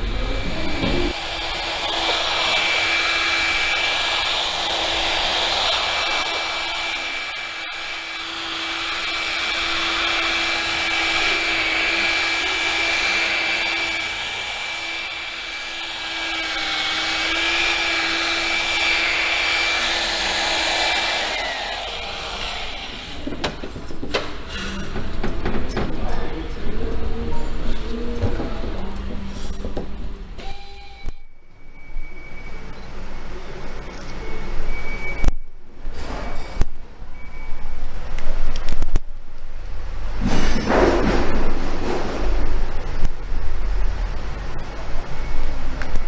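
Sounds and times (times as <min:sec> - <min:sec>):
electric polisher motor whine: 0:00.6 - 0:23.3.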